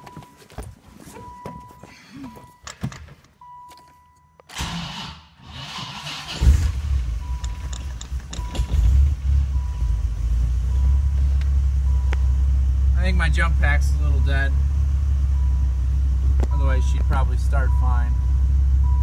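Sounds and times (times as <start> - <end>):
starter motor cranking: 4.5 - 9.1.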